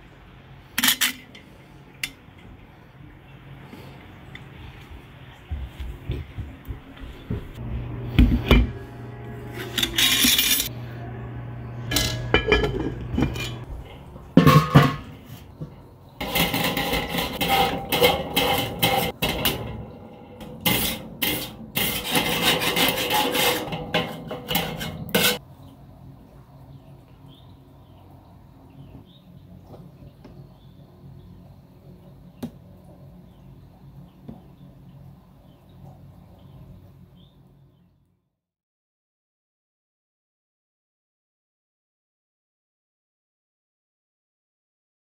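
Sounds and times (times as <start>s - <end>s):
metal cookware clanking and scraping: 0.8s - 2.2s, 8.3s - 10.8s, 11.8s - 25.4s.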